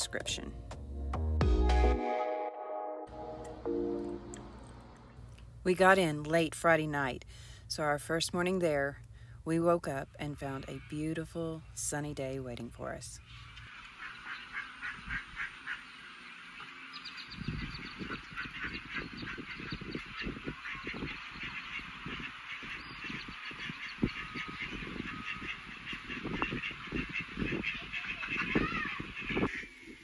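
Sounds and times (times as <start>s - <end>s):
birds calling: 13.2s - 30.0s.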